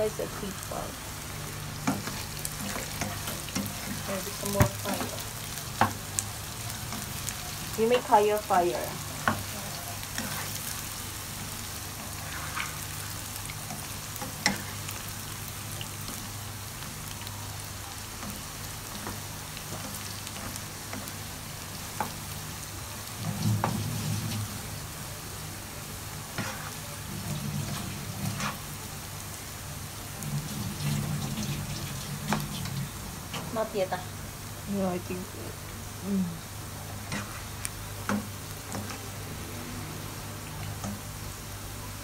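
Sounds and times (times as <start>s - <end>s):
food sizzling in hot oil: 0.0s - 42.0s
spatula scraping a pan: 9.2s - 10.8s, 12.0s - 14.9s, 26.4s - 28.7s, 37.0s - 37.6s.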